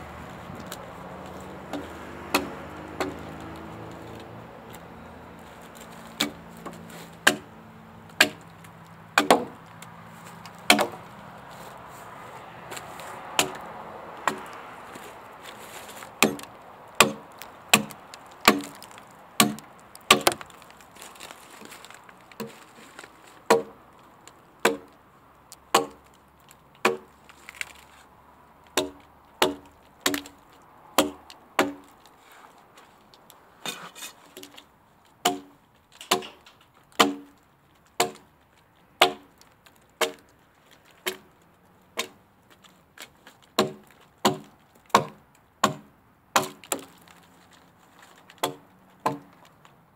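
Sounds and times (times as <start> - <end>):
axe chopping log: 0.5 - 9.7, 10.4 - 11.2, 12.6 - 20.6, 22.4 - 22.6, 23.4 - 23.8, 24.6 - 25.0, 25.7 - 26.0, 26.8 - 27.7, 28.7 - 31.9, 35.2 - 38.3, 39.0 - 39.4, 40.0 - 40.3, 41.0 - 41.3, 41.9 - 42.2, 43.2 - 47.0, 48.3 - 49.4.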